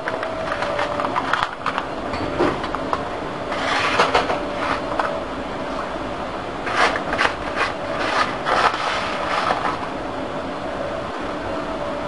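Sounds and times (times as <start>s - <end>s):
paper crinkling and rustling: 0.0s - 1.9s, 6.7s - 9.9s
faint steady hum: 0.0s - 12.0s.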